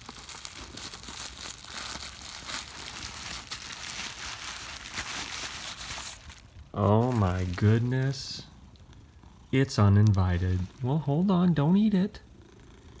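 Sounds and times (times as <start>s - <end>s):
bubble wrap crinkling: 0.0s - 8.8s, 9.6s - 10.9s.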